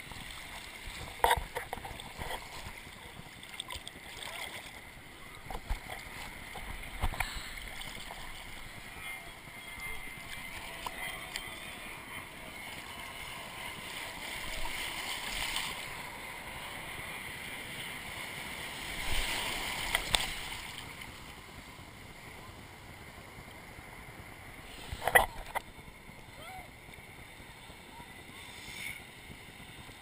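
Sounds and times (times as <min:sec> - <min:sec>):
ocean surf churning: 0:00.0 - 0:21.4.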